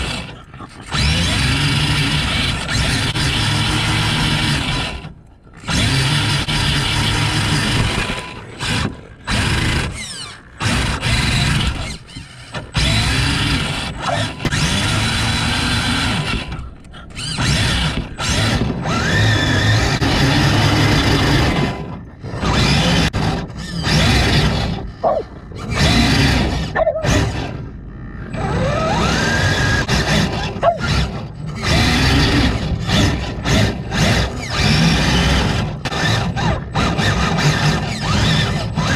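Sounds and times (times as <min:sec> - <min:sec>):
electric motor whining and grinding: 0:00.0 - 0:38.9.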